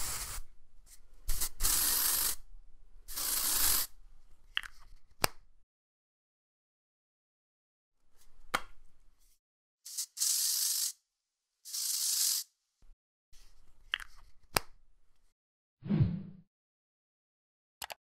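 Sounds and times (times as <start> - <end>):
aerosol spray hissing: 1.3 - 2.4, 3.1 - 3.9, 11.7 - 12.5.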